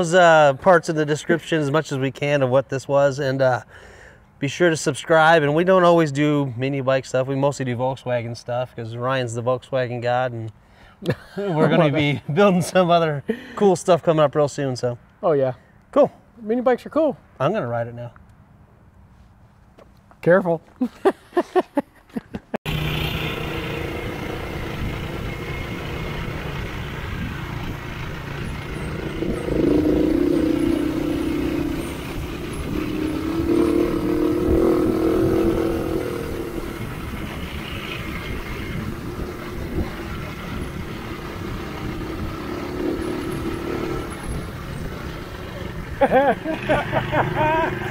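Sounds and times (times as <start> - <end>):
mini bike engine running: 22.7 - 44.8.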